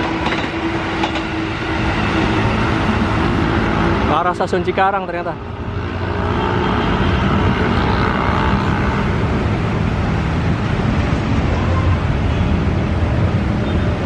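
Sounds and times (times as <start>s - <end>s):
electric train wheels and motors: 0.0s - 4.1s.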